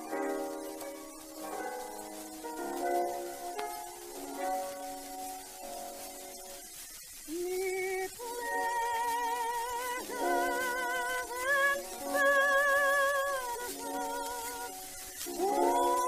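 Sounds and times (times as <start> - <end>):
musical accompaniment: 0.0 - 16.0
woman singing with vibrato: 7.3 - 16.0.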